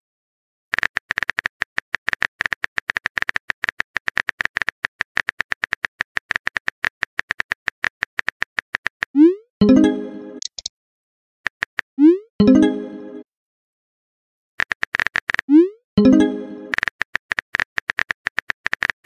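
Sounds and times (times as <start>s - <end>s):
chiming notification tone: 9.6s - 10.5s, 12.4s - 13.2s, 16.0s - 16.8s
keyboard typing clicks: 10.4s - 10.7s.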